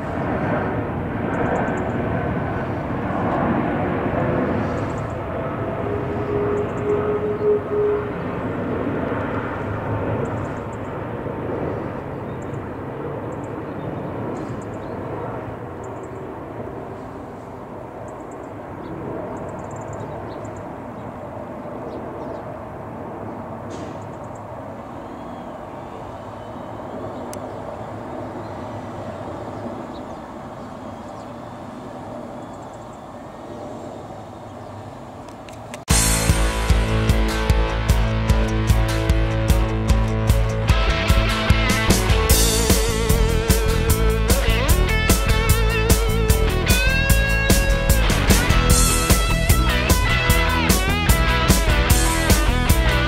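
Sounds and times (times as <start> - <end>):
faint whine: 0.0 - 21.0
jet rumble overhead: 0.0 - 53.0.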